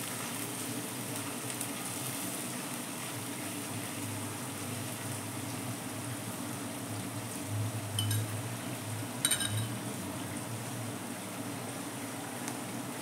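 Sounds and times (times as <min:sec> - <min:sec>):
onions sizzling in oil: 0:00.0 - 0:13.0
short ringing clinks: 0:08.0 - 0:08.3, 0:09.2 - 0:09.8.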